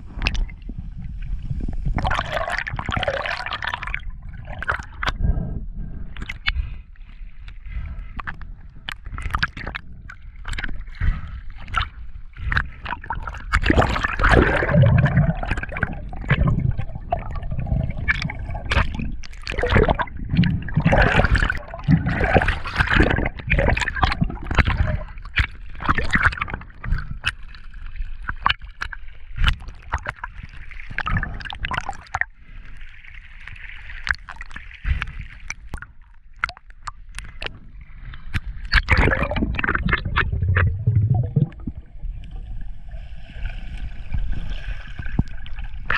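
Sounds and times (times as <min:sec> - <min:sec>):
water sloshing and gurgling: 0:00.0 - 0:45.9
water splashes and bubbling: 0:00.0 - 0:45.9.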